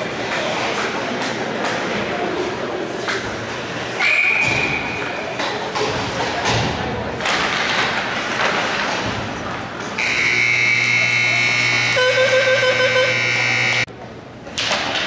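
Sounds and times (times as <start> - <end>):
hockey rink crowd and play: 0.0 - 15.0
electric arena horn: 10.0 - 13.9.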